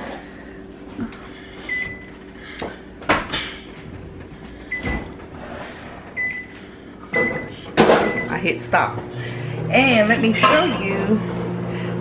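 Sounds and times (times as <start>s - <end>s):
microwave oven humming: 0.0s - 12.0s.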